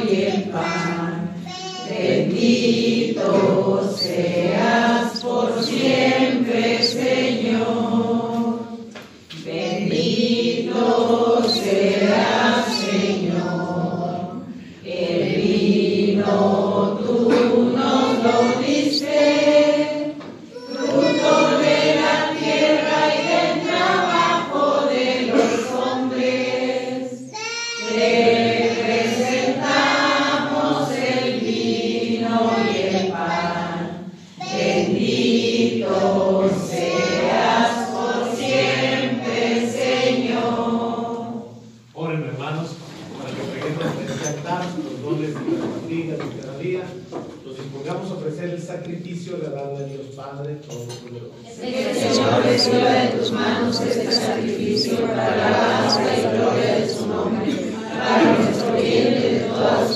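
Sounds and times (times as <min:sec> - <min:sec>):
congregation singing a hymn: 0:00.0 - 0:59.9.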